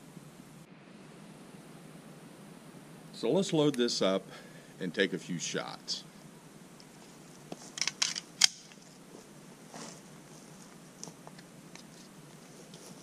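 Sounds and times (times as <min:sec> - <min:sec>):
pistol metallic clicks and clacks: 0:07.8 - 0:08.8.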